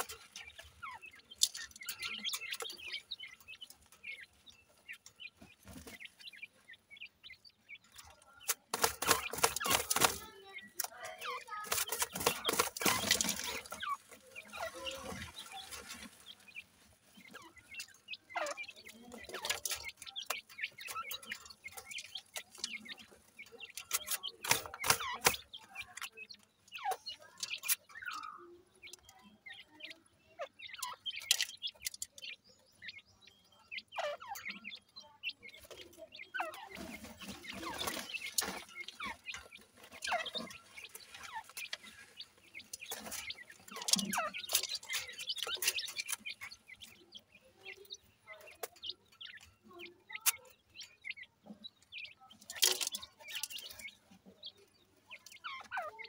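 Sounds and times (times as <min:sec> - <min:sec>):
chicks chirping: 0:00.0 - 0:56.0
pecking clicks in gravel: 0:08.4 - 0:16.6, 0:17.3 - 0:29.1, 0:30.8 - 0:32.4, 0:36.6 - 0:47.0, 0:52.4 - 0:54.0.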